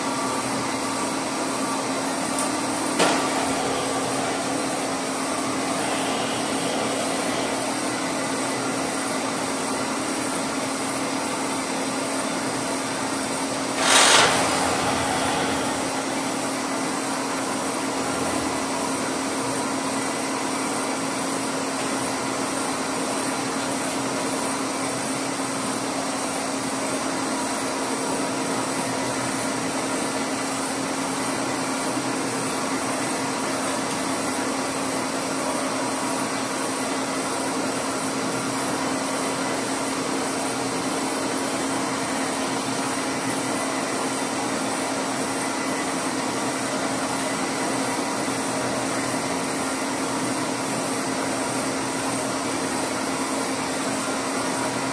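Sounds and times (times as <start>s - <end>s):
boring mill humming: 1.7s - 11.2s, 13.7s - 19.2s
loud burst of noise: 2.9s - 9.1s, 13.7s - 18.7s.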